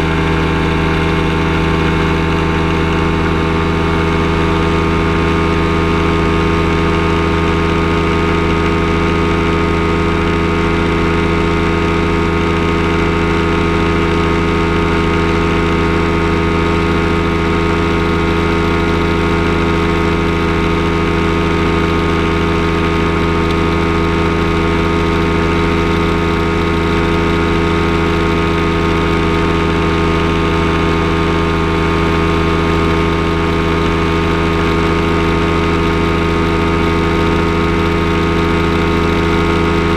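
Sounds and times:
aircraft engine running: 0:00.0 - 0:39.9.

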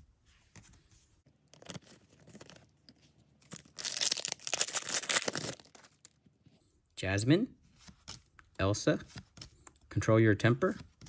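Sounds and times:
foil wrapper crinkling: 0:01.4 - 0:06.2
foil wrapper ripping: 0:01.5 - 0:02.7, 0:03.4 - 0:06.2.

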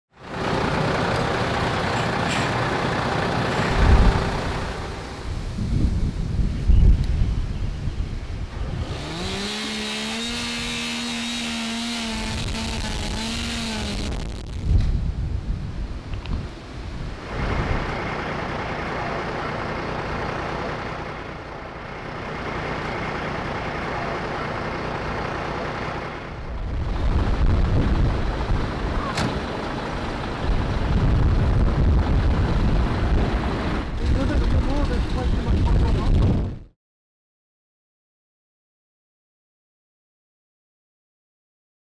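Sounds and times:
storm wind buffeting microphone: 0:03.6 - 0:08.9, 0:13.9 - 0:17.9, 0:26.3 - 0:36.7
small engine revving: 0:08.6 - 0:14.5.

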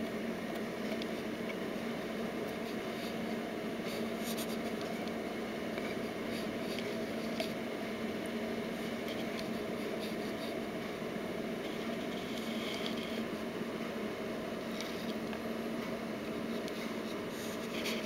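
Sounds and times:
steady low hum: 0:00.0 - 0:18.0
light ticks and scratches: 0:02.4 - 0:07.6, 0:08.2 - 0:10.7, 0:11.6 - 0:13.4, 0:14.6 - 0:18.0.

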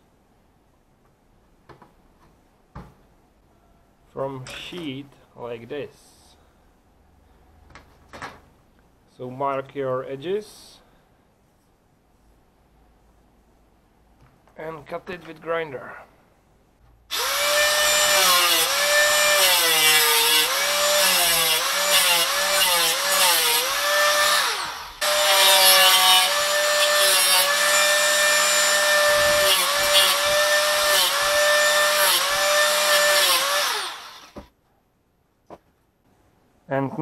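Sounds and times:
angle grinder cutting metal: 0:17.1 - 0:34.4.

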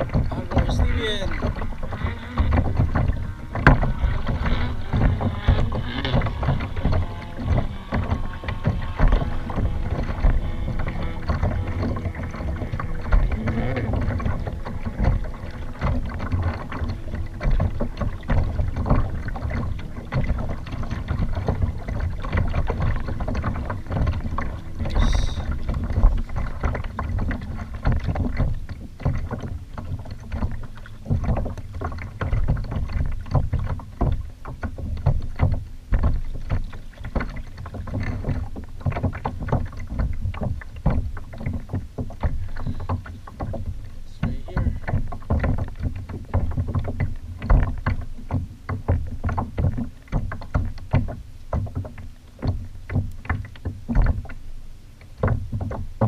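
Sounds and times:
low rumble: 0:00.0 - 0:28.2
water splashing against kayak hull: 0:00.0 - 0:56.0.

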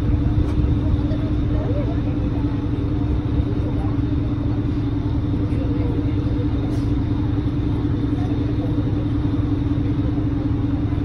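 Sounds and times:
wind rumble on microphone: 0:00.0 - 0:03.9
boat engine droning: 0:00.0 - 0:11.0.

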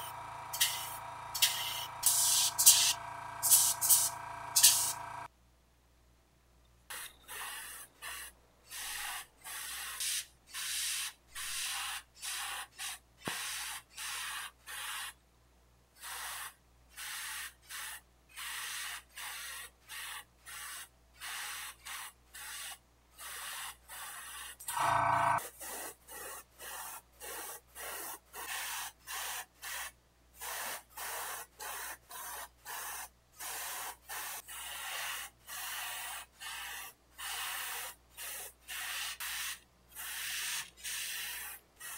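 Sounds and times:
airbrush spraying hiss: 0:00.0 - 0:05.3, 0:29.1 - 0:41.9.

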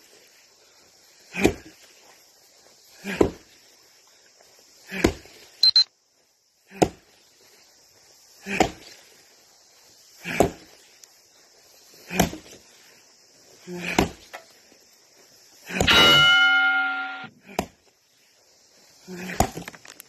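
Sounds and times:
short high beep: 0:05.6 - 0:05.9, 0:15.9 - 0:17.3
axe chopping wood: 0:06.8 - 0:07.0, 0:08.5 - 0:08.8, 0:10.3 - 0:10.6, 0:12.1 - 0:12.4, 0:13.9 - 0:14.2, 0:15.7 - 0:16.8.

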